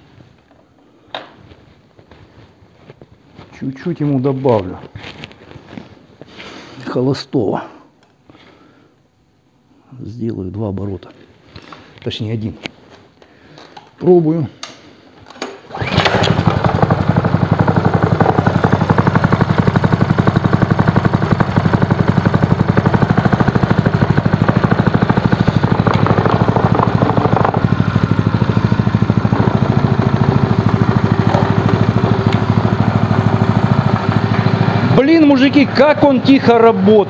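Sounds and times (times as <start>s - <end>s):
small engine running steadily: 15.7s - 37.0s.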